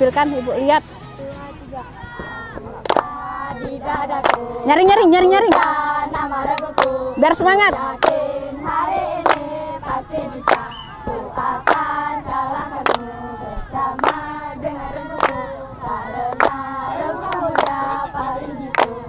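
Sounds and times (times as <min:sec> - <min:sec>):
children singing in unison: 0:02.4 - 0:04.7, 0:05.4 - 0:19.0
sharp hand clap: 0:02.8 - 0:04.5, 0:05.4 - 0:05.8, 0:06.5 - 0:07.0, 0:07.7 - 0:11.9, 0:12.7 - 0:13.1, 0:14.0 - 0:14.3, 0:15.1 - 0:15.4, 0:16.3 - 0:16.6, 0:17.2 - 0:17.8, 0:18.6 - 0:19.0.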